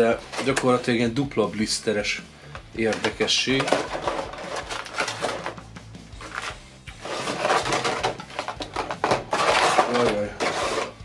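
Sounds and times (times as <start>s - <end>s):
plastic packaging crinkling: 3.6s - 5.5s, 6.2s - 10.8s.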